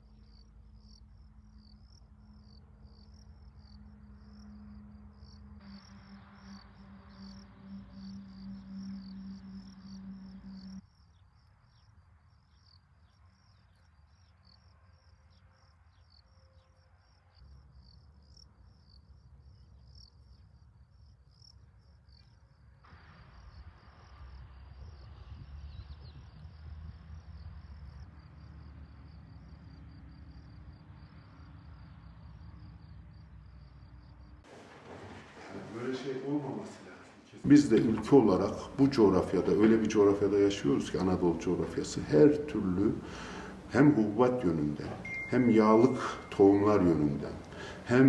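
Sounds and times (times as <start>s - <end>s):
faint insects chirping: 0.0s - 48.0s.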